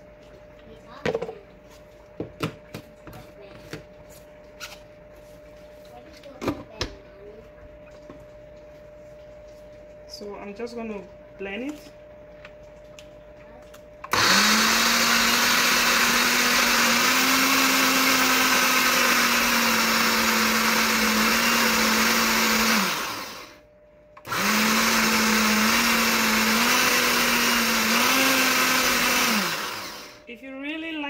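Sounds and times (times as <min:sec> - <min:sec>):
blender motor running: 0:14.0 - 0:30.3.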